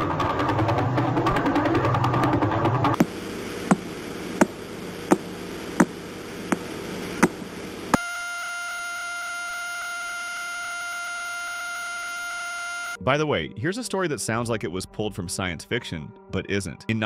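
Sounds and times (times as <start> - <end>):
steady buzzing tone: 2.3 - 13.0
steady hiss: 3.0 - 8.0.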